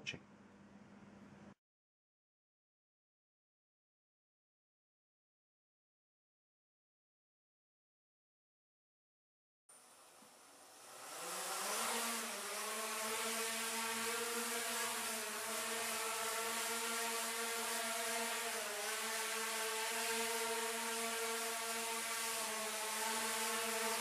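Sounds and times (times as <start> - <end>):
quadcopter motors whining: 9.8 - 24.0.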